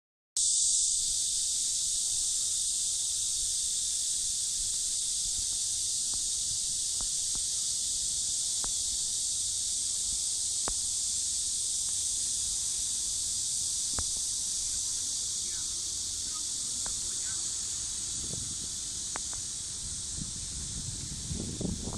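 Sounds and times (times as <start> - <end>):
steady high-pitched hiss: 0.4 - 21.9
faint ticks: 4.6 - 12.2, 13.9 - 14.4, 19.0 - 19.5.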